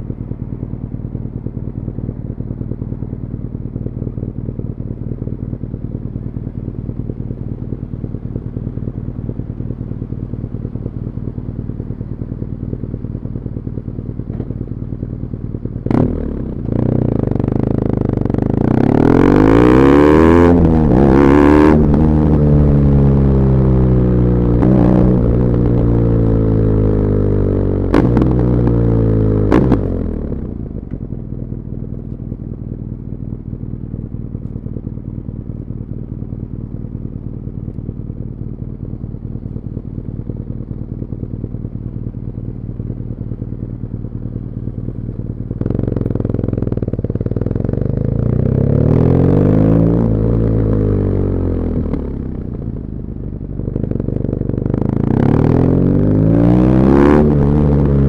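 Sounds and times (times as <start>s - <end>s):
motorcycle engine idling: 0.0s - 19.5s, 20.5s - 56.3s
motorcycle accelerating through gears: 6.3s - 33.1s, 38.6s - 58.0s.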